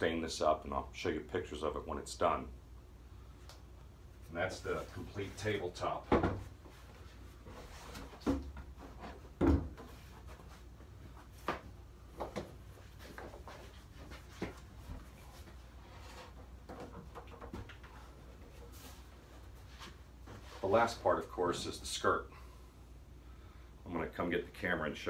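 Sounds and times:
wooden tabletop knocks and thumps: 9.4s - 9.8s.

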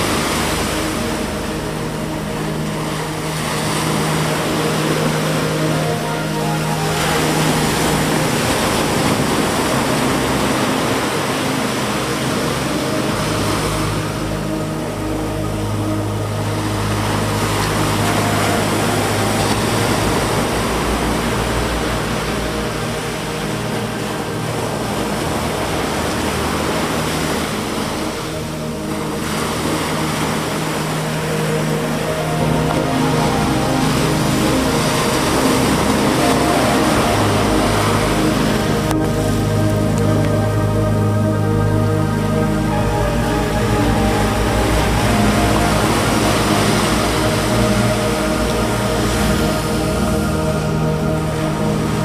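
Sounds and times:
low steady hum: 0.0s - 52.0s
waves washing onto a beach: 0.0s - 52.0s.

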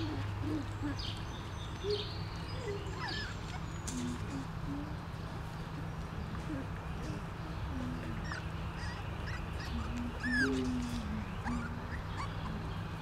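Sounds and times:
puppies squeaking: 0.0s - 4.6s, 8.0s - 13.0s
puppies growling: 0.0s - 13.0s.

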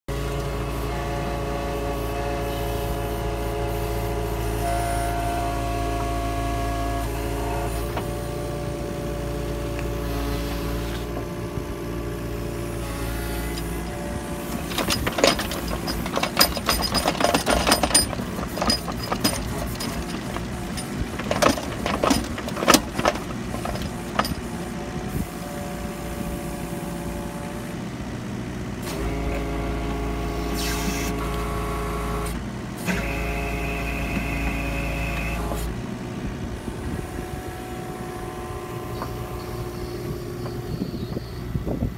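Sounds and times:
diesel excavator engine running: 0.1s - 41.9s
bucket knocking and clattering: 14.5s - 24.5s.

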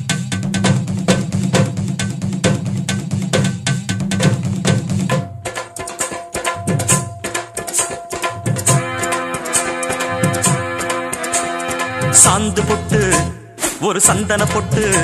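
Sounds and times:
percussion-heavy dance music: 0.0s - 15.0s
held instrument notes: 7.7s - 13.5s.

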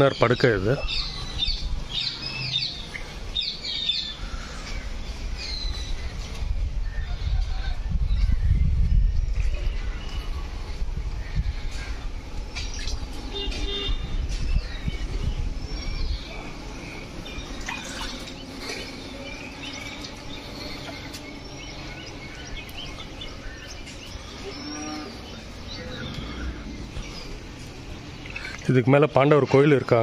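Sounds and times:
birds chirping: 0.0s - 30.0s
heavy low rumble: 0.8s - 28.6s
cattle lowing: 16.2s - 28.6s.

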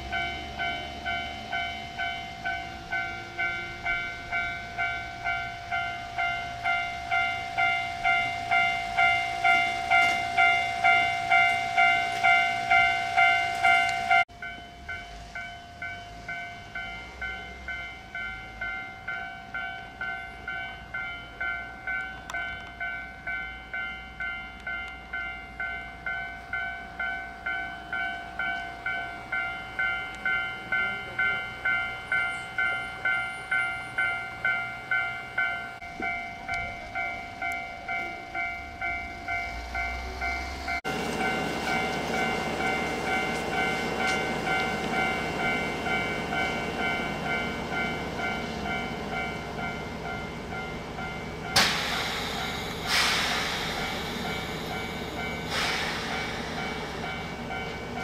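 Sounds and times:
electric train rushing: 0.0s - 58.0s
level crossing warning bell: 0.0s - 58.0s
short loud air hisses: 51.6s - 57.0s.

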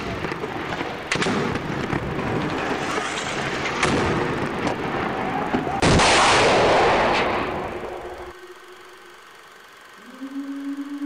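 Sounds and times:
gunfire rumble: 0.0s - 8.3s
loud explosion: 1.1s - 8.3s
sharp gunshots: 2.5s - 8.3s.

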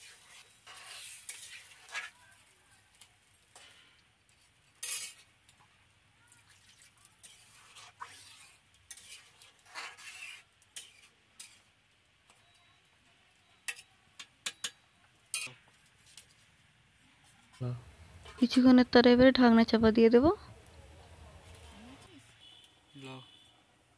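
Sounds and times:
metal spatula scraping a pan: 0.0s - 2.4s, 3.5s - 5.4s, 7.2s - 11.7s, 13.7s - 16.2s
metal clicking on pan: 13.6s - 15.6s.

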